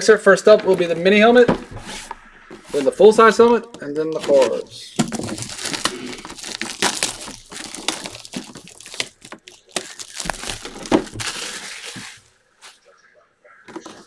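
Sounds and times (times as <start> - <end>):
shrink wrap crinkling: 4.0 - 12.8.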